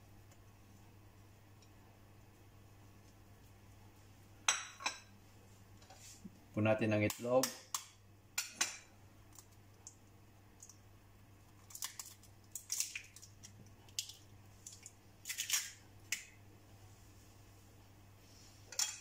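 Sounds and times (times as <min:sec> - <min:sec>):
faint low hum: 0:00.0 - 0:19.0
eggshell cracking: 0:09.3 - 0:10.9, 0:11.5 - 0:16.4.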